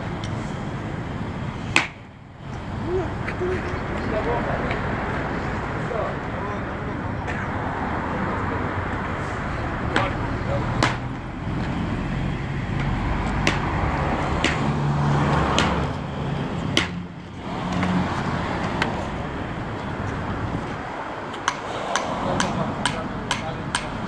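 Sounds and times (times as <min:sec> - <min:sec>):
road traffic going by: 0:00.0 - 0:24.0.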